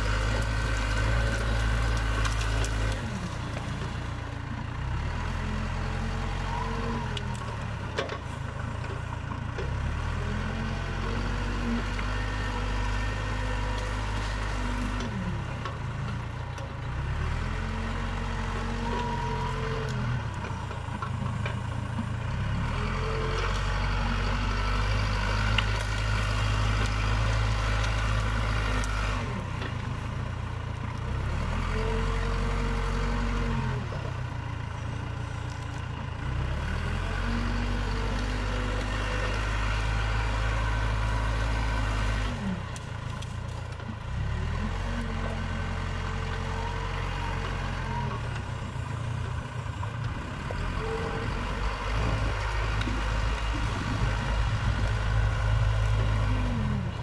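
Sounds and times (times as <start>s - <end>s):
diesel engine under load: 0.0s - 57.0s.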